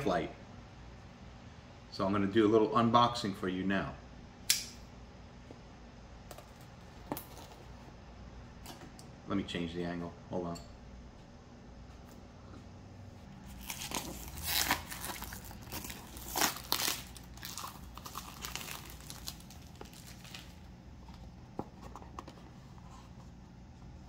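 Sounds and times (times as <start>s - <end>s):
plastic wrap crinkling: 13.4s - 20.7s.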